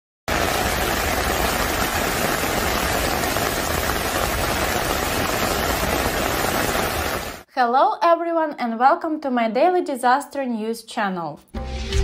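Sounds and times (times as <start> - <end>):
floodwater rushing: 0.3 - 7.4
heavy rain pouring: 0.3 - 7.4.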